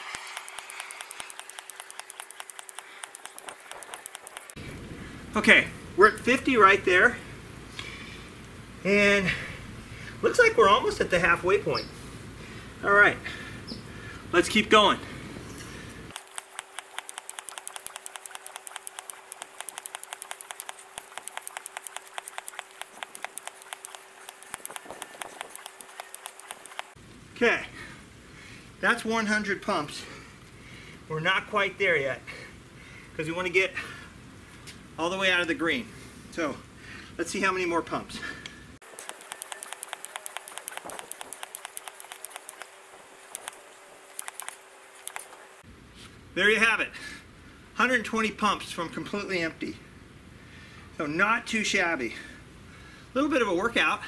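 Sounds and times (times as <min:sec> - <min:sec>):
hand pump rapid clicks: 0:00.0 - 0:04.6, 0:16.1 - 0:27.0, 0:38.8 - 0:45.3.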